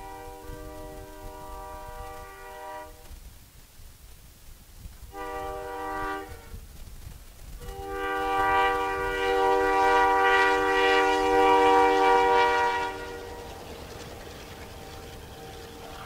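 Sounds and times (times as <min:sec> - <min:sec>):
train air horn chord: 0:00.0 - 0:03.1, 0:05.1 - 0:06.6, 0:07.6 - 0:13.8
train rumbling through snow: 0:00.0 - 0:16.0.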